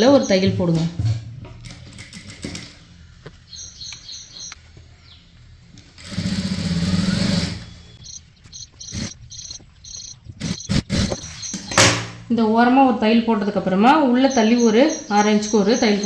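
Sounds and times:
sewing machine stitching: 6.0 - 7.8.

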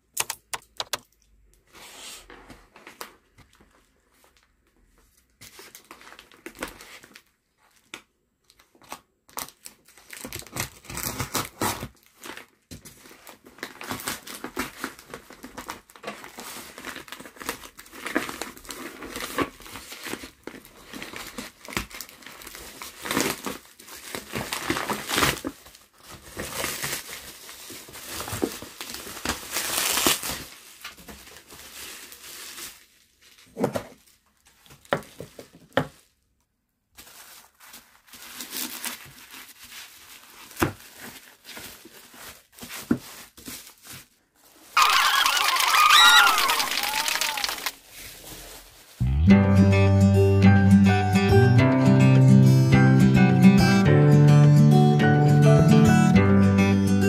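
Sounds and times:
plastic and bubble wrap crinkling: 1.6 - 49.2
plastic mailer tearing: 8.8 - 12.6, 13.3 - 34.0, 37.0 - 44.0, 44.8 - 48.7.

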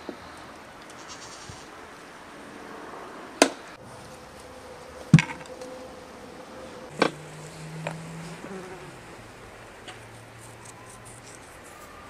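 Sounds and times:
fly buzzing: 6.9 - 10.2.

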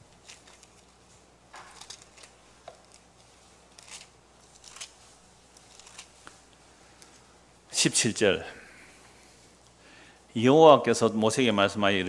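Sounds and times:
thin paper pages rustling: 0.0 - 6.4.

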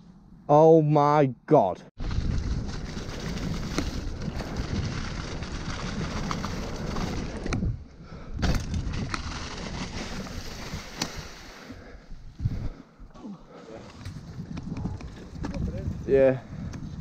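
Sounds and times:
bike knocking and rattling: 2.0 - 11.2, 14.0 - 17.0
bike tyres rumbling on dirt: 2.0 - 12.7, 14.0 - 17.0
wind on microphone: 2.0 - 12.8, 13.8 - 17.0.

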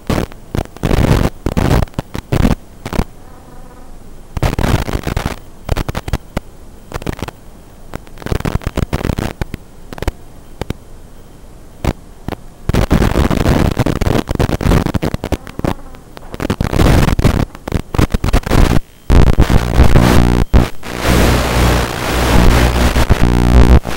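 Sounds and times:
crackling radio static: 0.0 - 23.9
harsh steady buzz: 11.4 - 23.9.

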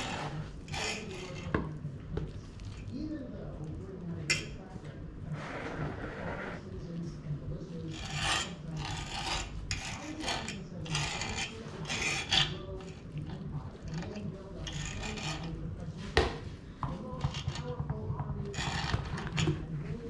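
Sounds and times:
meat scraping on wooden board: 0.0 - 1.6, 7.9 - 15.6, 18.5 - 19.5.

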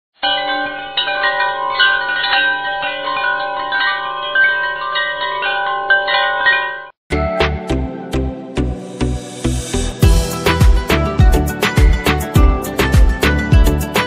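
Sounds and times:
wind chimes ringing: 0.2 - 7.0.

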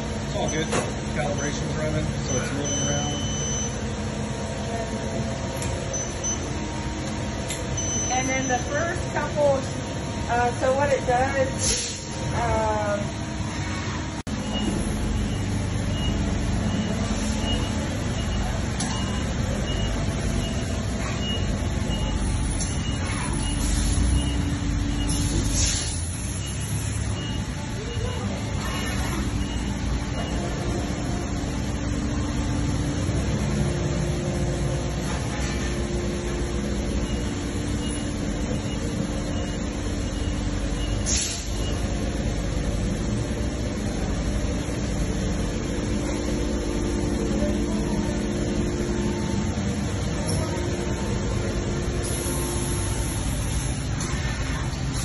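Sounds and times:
low machine hum: 0.0 - 55.0.

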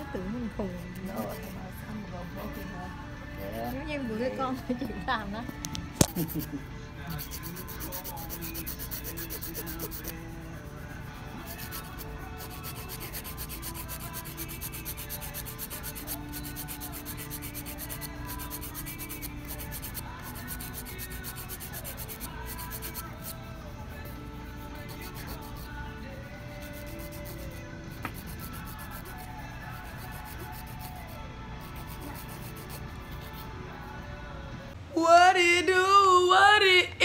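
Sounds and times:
nail file rasping on fingernails: 1.0 - 1.7, 5.6 - 23.4, 24.0 - 33.5.

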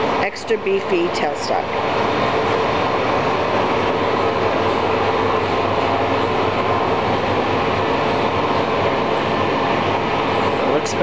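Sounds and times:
shop machinery droning: 0.0 - 11.0.

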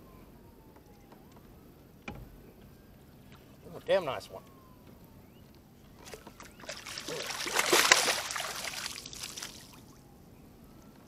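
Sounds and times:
water splashing off landing net: 6.0 - 9.8.

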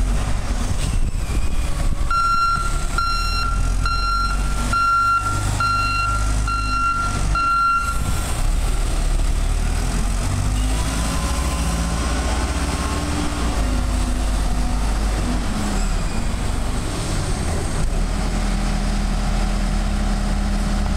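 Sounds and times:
forklift diesel engine running: 0.0 - 20.9
reversing alarm beeps: 1.1 - 8.1.

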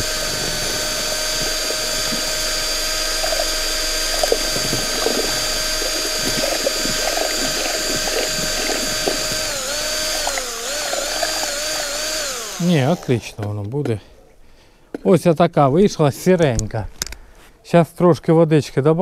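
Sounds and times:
drill whining: 0.0 - 13.4.

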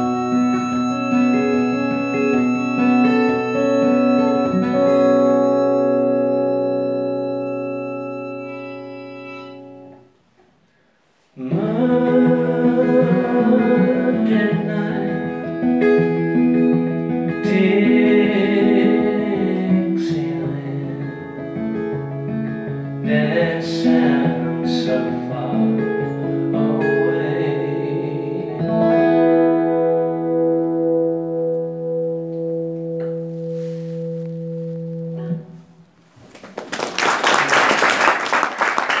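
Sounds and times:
person singing: 0.0 - 6.3, 11.4 - 16.3, 17.2 - 21.7, 23.0 - 29.4
acoustic guitar music: 0.0 - 36.2
audience applause: 36.2 - 39.0.

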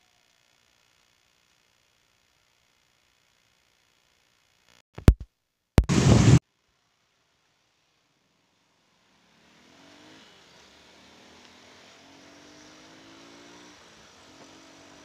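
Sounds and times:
motorcycle engine accelerating: 9.1 - 15.0.

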